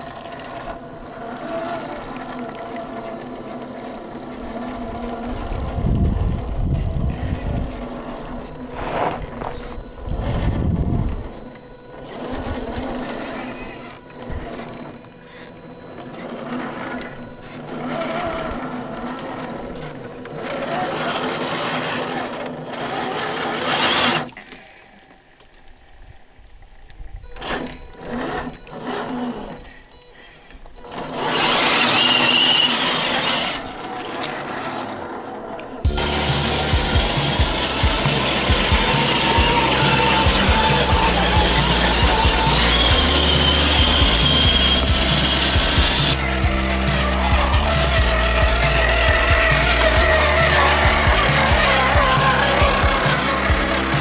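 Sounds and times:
toy truck motor whining: 0.0s - 24.8s, 26.8s - 54.0s
low rumbles: 35.8s - 54.0s.

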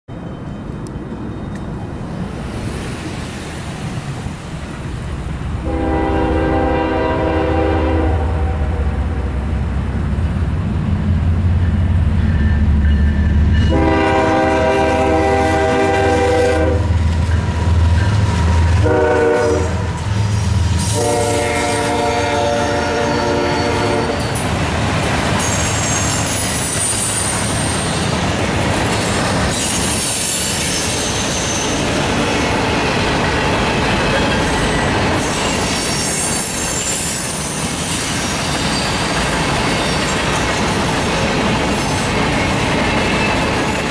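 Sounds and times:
train air horn blasts: 5.6s - 9.4s, 13.6s - 16.9s, 18.7s - 20.1s, 20.8s - 24.3s
train wheel clatter: 10.3s - 19.2s, 19.9s - 43.9s
high-pitched wheel squeal: 34.2s - 40.3s.

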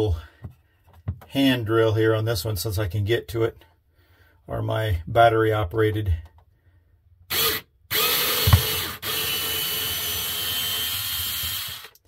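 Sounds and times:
cordless drill motor whirring: 7.3s - 12.0s.

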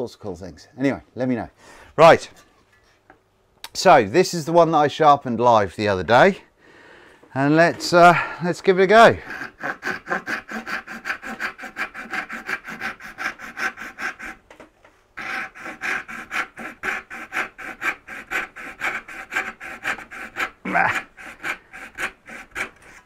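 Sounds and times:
hand saw cutting wood: 7.6s - 14.6s, 15.2s - 23.0s.

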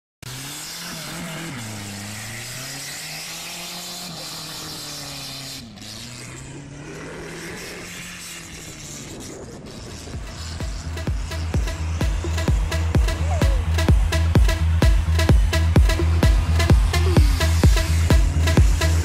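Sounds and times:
buggy engine revving: 0.2s - 19.0s
steady rushing noise: 6.6s - 19.0s.

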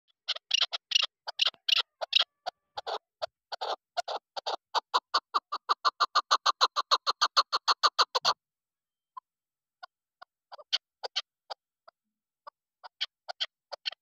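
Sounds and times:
partridge clucking: 0.3s - 8.4s.

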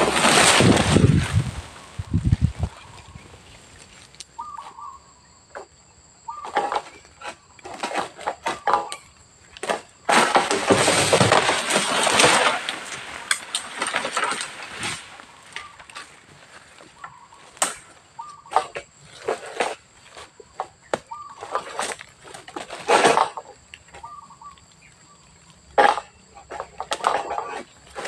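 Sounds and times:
loud rustling rush: 0.0s - 2.7s
sickle cutting fronds: 0.0s - 4.7s, 9.6s - 23.5s.

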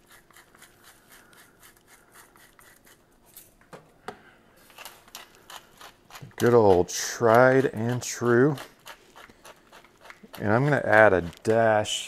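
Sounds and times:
pepper grinder grinding: 0.0s - 3.6s, 4.6s - 12.0s.

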